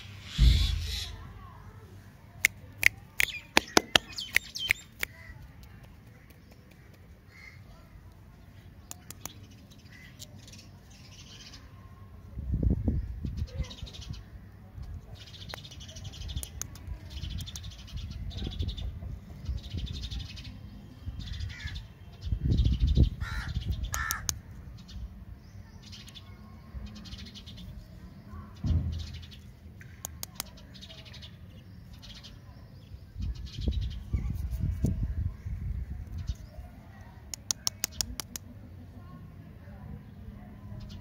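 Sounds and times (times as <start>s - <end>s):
birds harsh calls: 0.0s - 1.5s, 6.2s - 7.9s, 8.7s - 11.6s, 21.2s - 26.3s.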